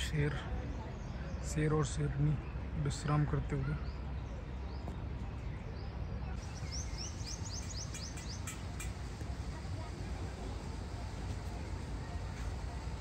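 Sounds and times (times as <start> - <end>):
low outdoor rumble: 0.0 - 13.0
small bird chirping: 6.4 - 9.0.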